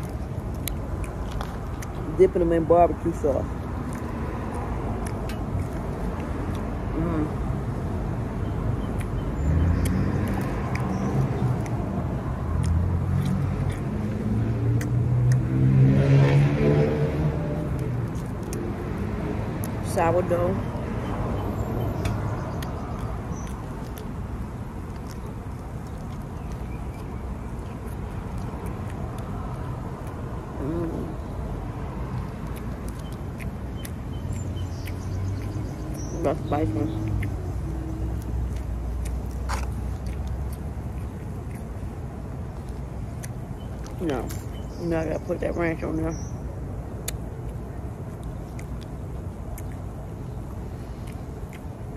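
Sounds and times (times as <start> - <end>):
wet mouth clicks: 0.0 - 2.1, 3.7 - 7.4, 8.8 - 11.9, 12.5 - 15.6, 21.3 - 24.2, 24.9 - 31.2, 32.1 - 41.8, 42.6 - 44.7, 47.0 - 47.6, 48.2 - 51.9
chewing sandwich: 0.0 - 2.2, 3.1 - 7.6, 8.4 - 19.8, 20.6 - 44.8, 47.0 - 51.9
road traffic rumble: 0.0 - 51.9
car engine accelerating: 9.4 - 19.7.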